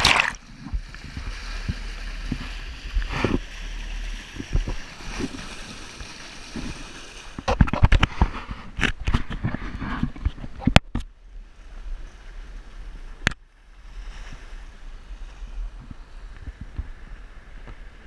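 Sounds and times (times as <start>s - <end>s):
water splashing along boat hull: 0.0s - 10.8s
wind rumble on microphone: 0.4s - 18.0s.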